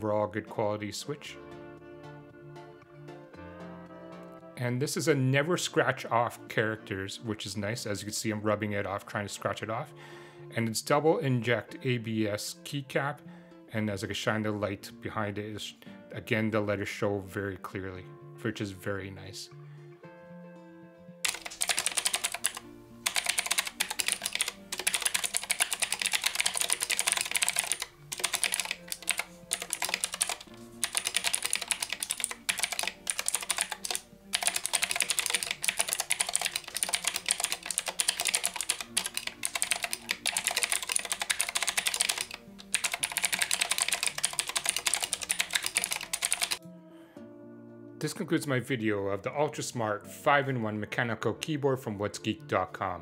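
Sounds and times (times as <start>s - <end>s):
mechanical keyboard typing clicks: 21.3s - 46.6s.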